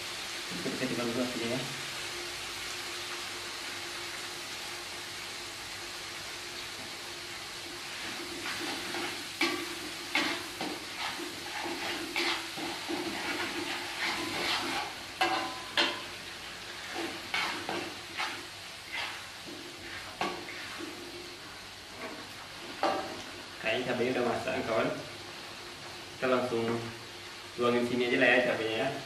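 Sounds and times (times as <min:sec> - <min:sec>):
chillies sizzling in hot oil: 0:00.0 - 0:29.0
spatula scraping a wok: 0:07.8 - 0:23.3.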